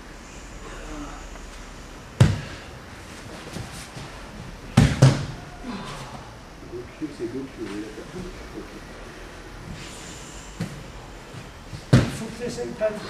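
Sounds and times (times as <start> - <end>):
bodies thudding on mats: 2.2 - 6.2, 10.6 - 12.7.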